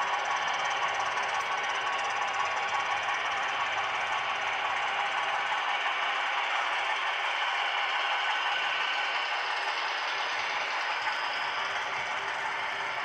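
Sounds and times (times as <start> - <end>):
model train rattling on track: 0.0 - 13.0.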